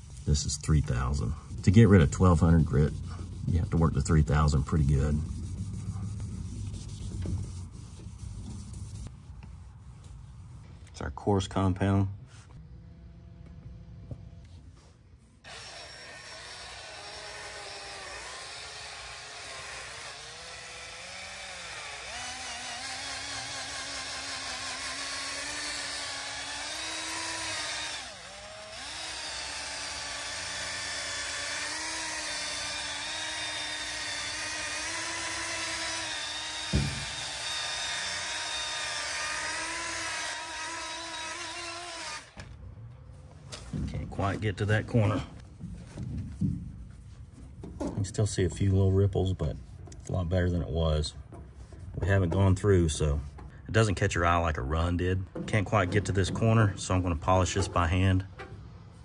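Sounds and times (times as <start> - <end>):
handheld polisher motor whine: 15.4 - 42.5
sharp knock: 36.7 - 37.2.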